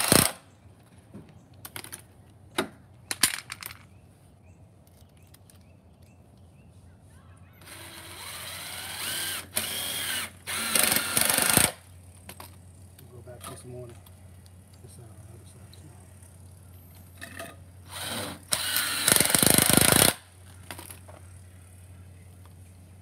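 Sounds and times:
cordless drill driving screws: 7.6 - 11.8, 17.9 - 20.2.

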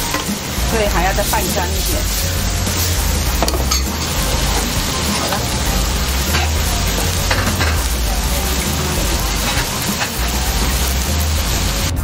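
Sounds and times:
food sizzling in a frying pan: 0.0 - 12.0.

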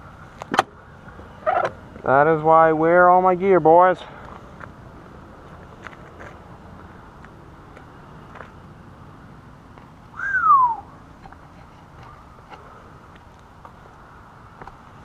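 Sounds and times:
person whistling: 10.2 - 10.9.

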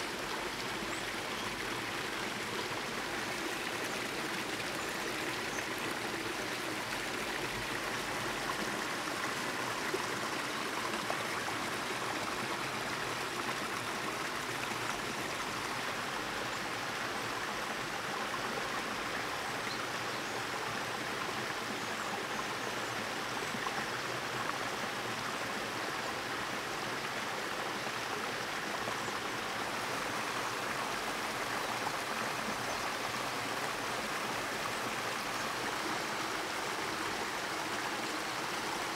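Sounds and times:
stream flowing water: 0.0 - 38.9.

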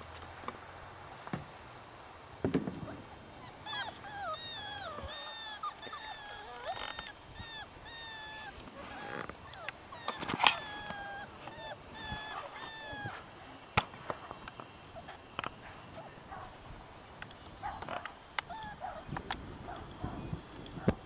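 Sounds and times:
thump: 2.4 - 3.0
puppies whining and yelping: 3.4 - 13.3, 18.4 - 19.0.

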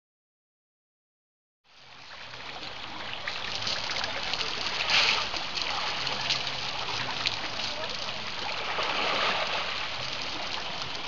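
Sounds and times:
falling water patter: 1.7 - 11.0
elephant splashing water: 3.3 - 11.0.

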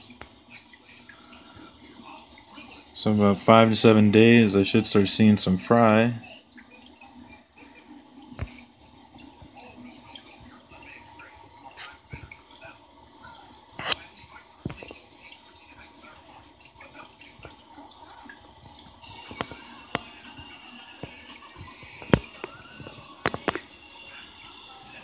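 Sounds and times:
aquarium water trickling and bubbling: 0.0 - 25.0.

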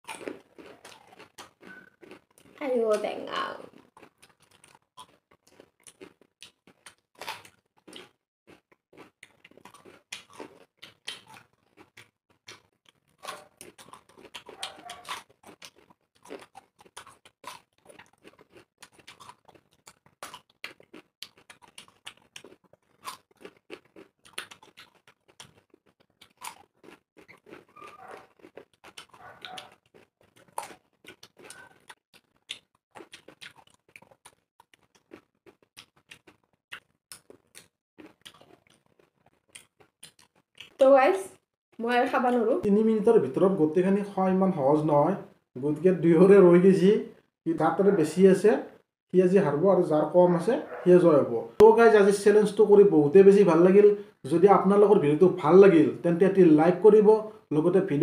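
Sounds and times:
wet crunching and chewing: 0.0 - 40.9.

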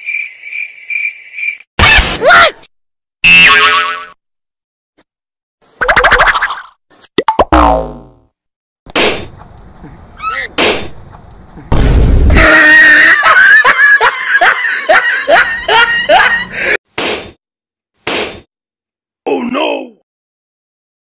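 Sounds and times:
cartoon falling glide: 5.8 - 6.7, 7.4 - 8.2
sharp pops: 8.9 - 9.5, 10.6 - 11.0
pitched cries or laughter: 12.3 - 16.8.

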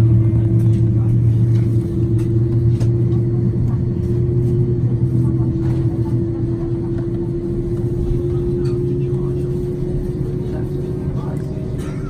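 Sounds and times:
aircraft cabin drone: 0.0 - 12.0.

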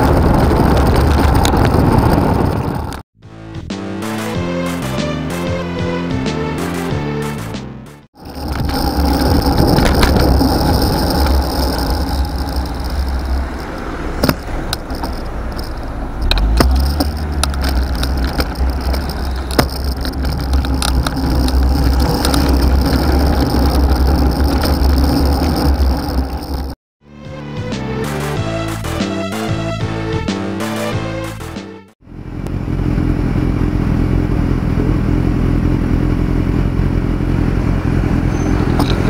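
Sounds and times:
tyre and road noise: 0.0 - 3.0, 8.2 - 26.8, 32.0 - 39.0
wind rumbling on microphone: 0.0 - 3.0, 8.2 - 26.8
passing car traffic: 8.2 - 26.8
sharp clicks: 8.4 - 26.8.

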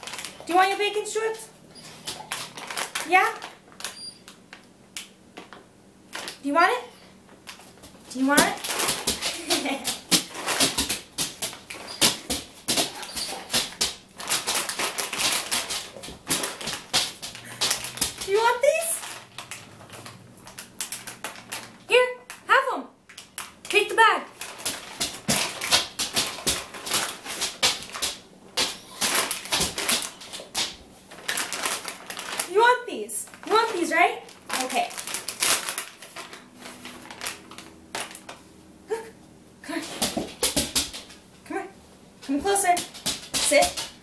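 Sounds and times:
plastic bag crinkling: 0.0 - 1.0, 1.7 - 4.4, 7.5 - 21.8, 24.4 - 38.4
dog whimpering: 12.9 - 13.5.

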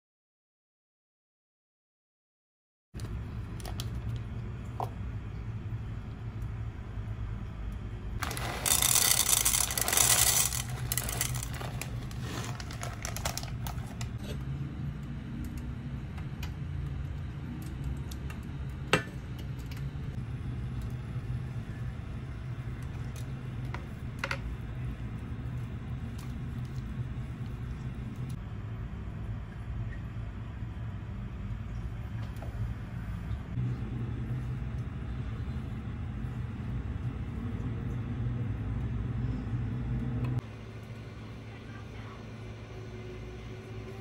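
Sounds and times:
steady low hum: 3.0 - 44.0
chocolate chips rattling in a pan: 8.2 - 14.0.

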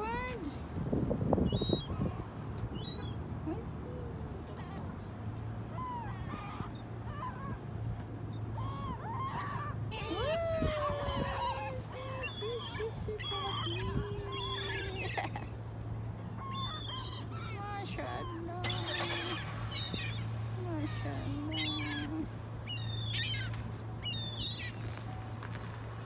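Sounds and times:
gulls calling: 5.6 - 26.0.

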